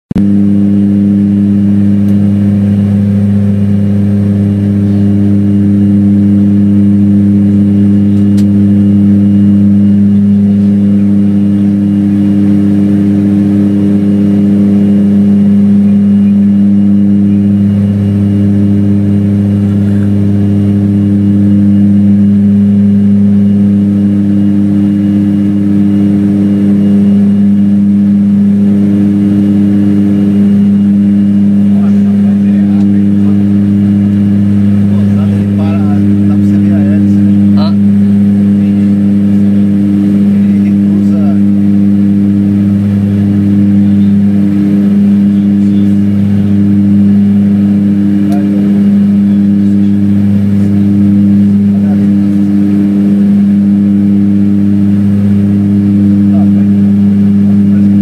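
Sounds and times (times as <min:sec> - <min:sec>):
propeller aircraft droning in cabin: 0:00.0 - 0:58.0.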